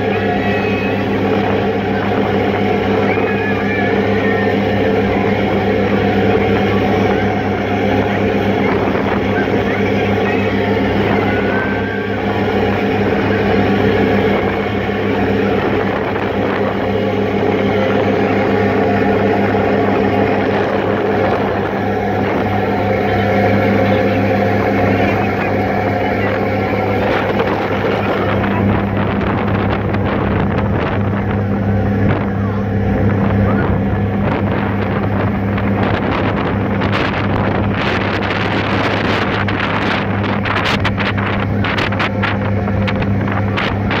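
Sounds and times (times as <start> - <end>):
ferry diesel engines droning: 0.0 - 44.0
wake water rushing: 0.0 - 44.0
wind buffeting microphone: 0.0 - 44.0.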